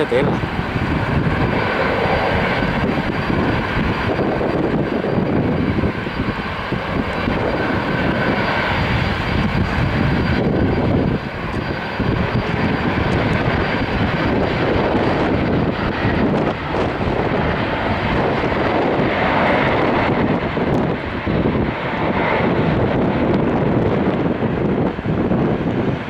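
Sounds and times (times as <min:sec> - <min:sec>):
faint high whine: 0:00.0 - 0:14.4
jet engines rumbling: 0:00.0 - 0:26.0.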